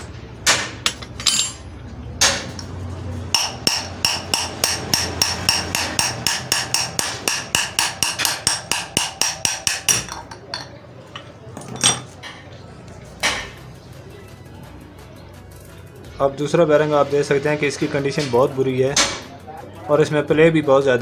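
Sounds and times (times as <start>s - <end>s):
hammer striking steel rod: 0.4s - 1.6s, 3.3s - 10.7s, 19.0s - 19.3s.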